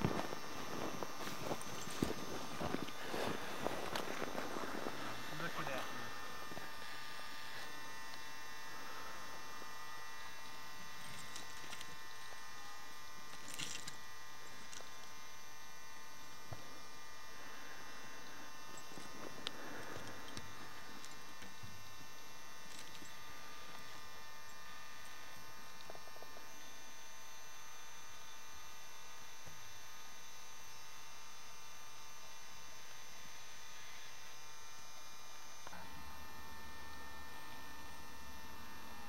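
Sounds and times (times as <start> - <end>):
faint rustles: 0.0 - 15.1
electrical hum with high whine: 0.0 - 39.0.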